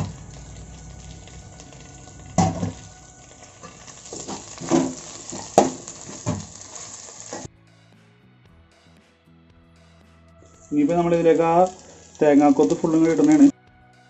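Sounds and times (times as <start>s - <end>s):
onions sizzling in hot fat: 0.0s - 7.5s, 10.5s - 13.5s
steel spoon scraping a wok: 0.0s - 7.5s.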